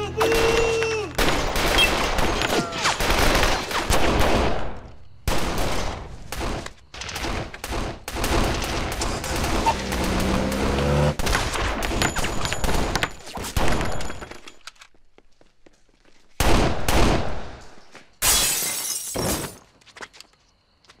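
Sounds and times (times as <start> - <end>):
rapid gunfire: 2.9 - 4.6, 5.3 - 11.9
glass shattering: 18.2 - 19.6.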